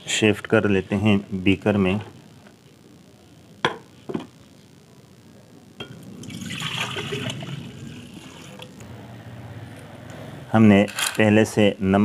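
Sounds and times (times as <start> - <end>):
liquid pouring into glass beaker: 6.2 - 8.7.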